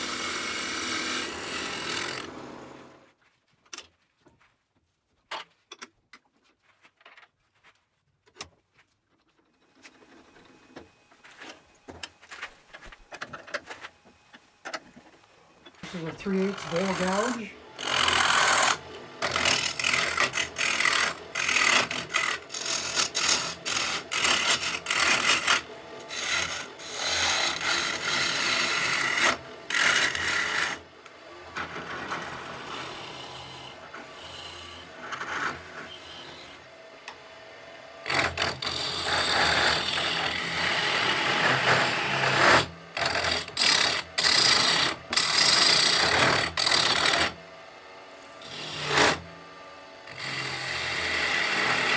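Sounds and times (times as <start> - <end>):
gouge scraping wood on a lathe: 15.8 - 30.9, 31.5 - 36.7, 38.0 - 47.4, 48.4 - 49.2, 50.0 - 51.9.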